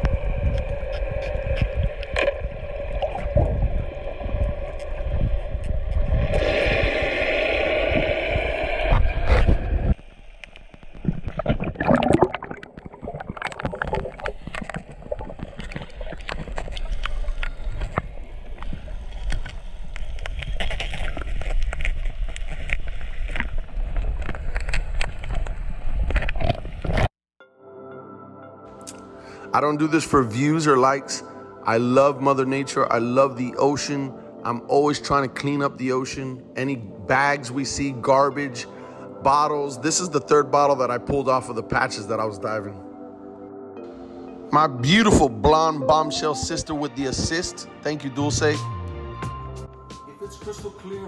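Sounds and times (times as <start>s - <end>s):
bubbling: 0.0s - 27.0s
clicking and crackling: 12.5s - 18.0s.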